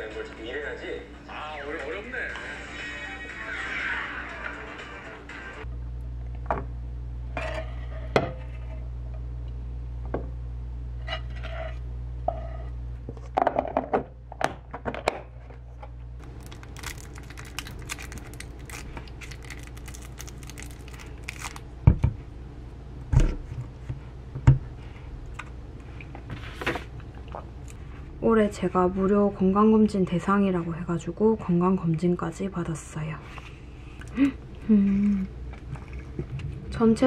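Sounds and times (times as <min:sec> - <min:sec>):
steady low hum: 0:00.0 - 0:37.0
plastic wrapper crinkling and tearing: 0:16.2 - 0:21.7.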